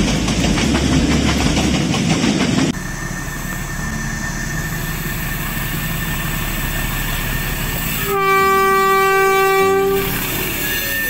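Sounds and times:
train horn: 0:07.9 - 0:11.0.

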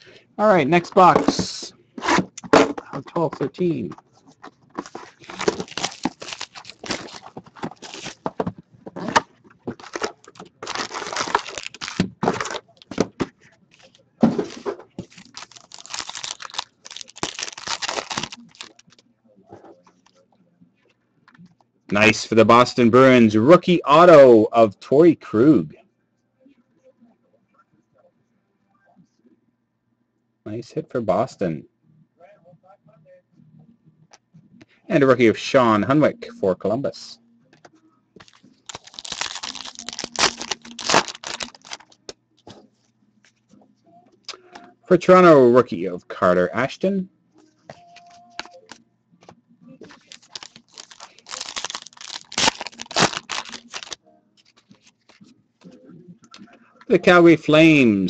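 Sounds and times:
foil wrapper tearing and crinkling: 0:04.8 - 0:08.3, 0:09.0 - 0:13.0, 0:14.5 - 0:18.8, 0:38.2 - 0:42.0, 0:49.9 - 0:54.0.

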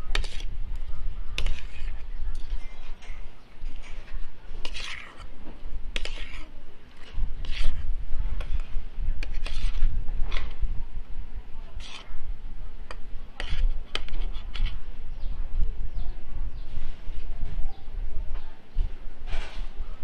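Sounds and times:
cutlery scraping a ceramic plate: 0:00.0 - 0:00.5, 0:01.4 - 0:05.3, 0:05.9 - 0:10.6, 0:11.7 - 0:12.1, 0:12.9 - 0:14.8.

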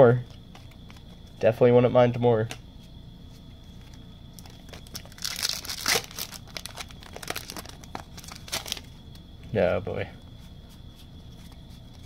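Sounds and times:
cards clicking and rustling: 0:03.8 - 0:09.2
foil wrapper tearing and crinkling: 0:04.7 - 0:08.9.

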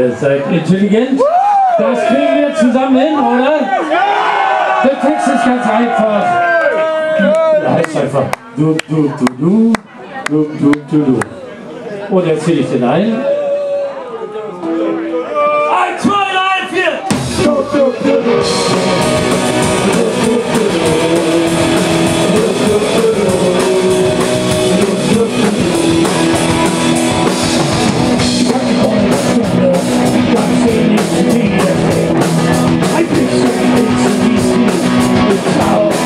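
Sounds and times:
drum kit beat: 0:17.1 - 0:36.0
electric guitar: 0:17.1 - 0:36.0.

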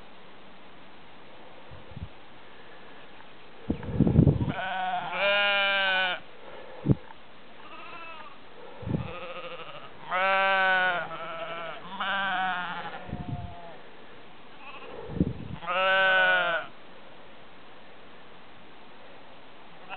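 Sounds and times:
sheep bleating: 0:04.5 - 0:06.2, 0:07.6 - 0:13.8, 0:14.6 - 0:14.9, 0:15.6 - 0:16.7.

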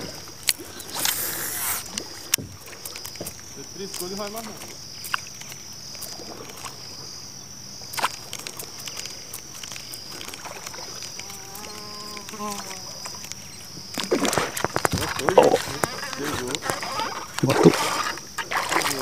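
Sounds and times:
insects buzzing: 0:00.0 - 0:19.0
fish splashing at surface: 0:07.8 - 0:19.0.

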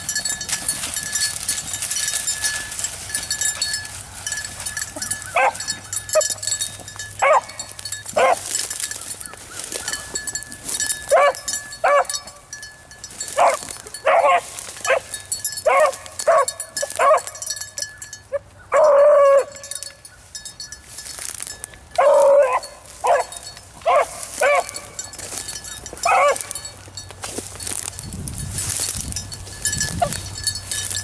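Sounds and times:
dog yelping: 0:05.0 - 0:06.4, 0:07.2 - 0:08.5, 0:11.1 - 0:12.2, 0:13.4 - 0:17.4, 0:18.3 - 0:19.7, 0:22.0 - 0:25.0, 0:25.9 - 0:26.6.

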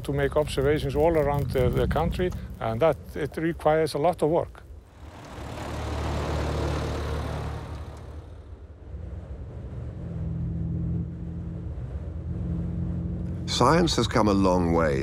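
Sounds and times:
low engine drone: 0:04.7 - 0:15.0
vehicle passing by: 0:04.9 - 0:15.0.

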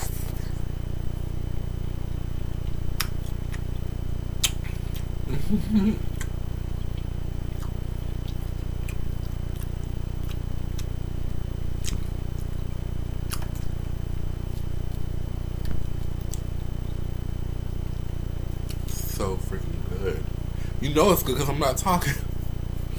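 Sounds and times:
steady low hum: 0:00.0 - 0:22.9
mouth smacks and clicks: 0:02.6 - 0:05.1, 0:11.8 - 0:12.1, 0:13.2 - 0:13.8, 0:15.6 - 0:17.0
chewing salad: 0:06.1 - 0:11.0, 0:11.8 - 0:12.6, 0:13.2 - 0:13.8.

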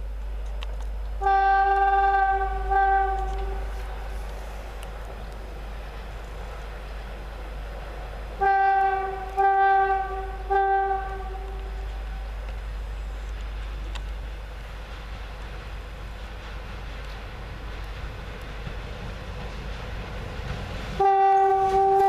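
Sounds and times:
low rumble of train: 0:00.0 - 0:22.0
locomotive horn blasts: 0:01.2 - 0:04.0, 0:08.4 - 0:12.2, 0:21.0 - 0:22.0.

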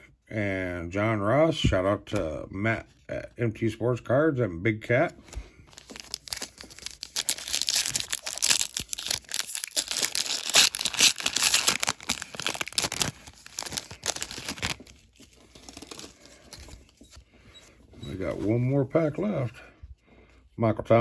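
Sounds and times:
foil wrapper tearing and crinkling: 0:05.7 - 0:16.8.

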